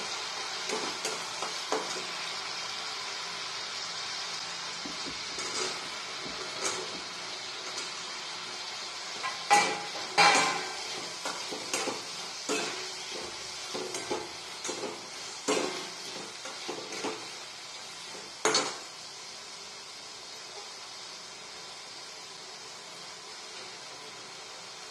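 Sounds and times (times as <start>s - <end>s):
frying sizzle: 0.0s - 24.9s
steel spatula scraping metal pan: 5.4s - 6.9s, 9.2s - 17.3s.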